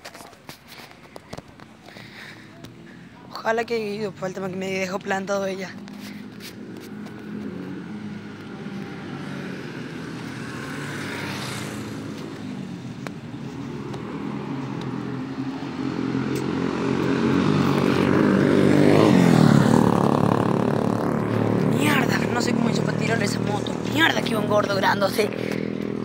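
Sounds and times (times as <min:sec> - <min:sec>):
vehicle engine passing by: 0:05.6 - 0:26.0.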